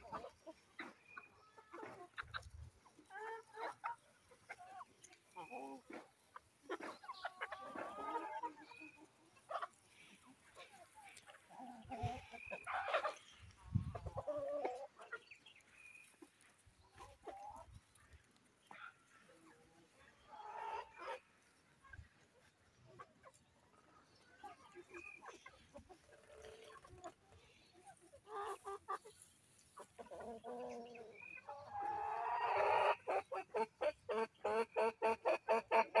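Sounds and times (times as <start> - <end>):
chickens clucking and calling: 0.0 - 36.0
chicken long drawn-out call: 30.2 - 33.3.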